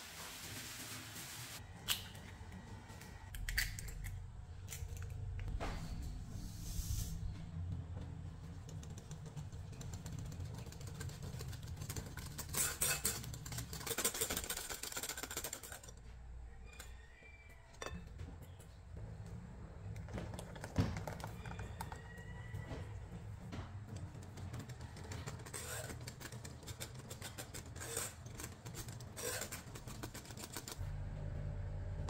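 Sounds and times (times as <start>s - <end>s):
low hum: 30.8s - 32.0s.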